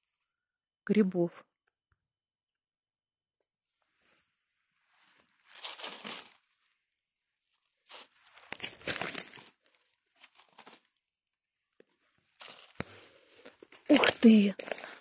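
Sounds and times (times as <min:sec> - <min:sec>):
pine needles and leaves rustling: 0:04.9 - 0:06.7, 0:07.8 - 0:10.9, 0:12.0 - 0:15.0.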